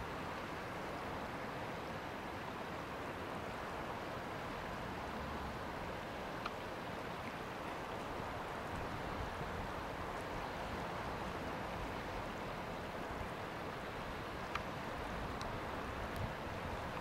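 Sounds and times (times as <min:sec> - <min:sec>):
geyser erupting water and steam: 0:00.0 - 0:17.0.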